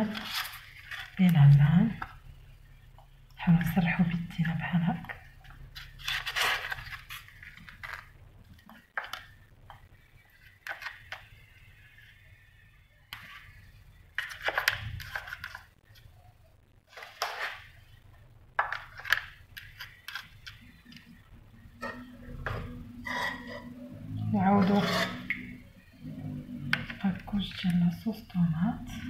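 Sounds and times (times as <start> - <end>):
pasta sheets rustling: 0.0 - 2.0, 5.7 - 9.4, 16.8 - 18.0.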